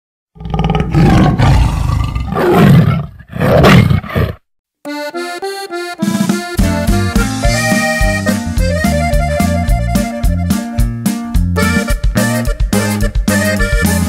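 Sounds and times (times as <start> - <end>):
big cat roaring: 0.4 - 4.4
accordion playing short notes: 4.9 - 14.0.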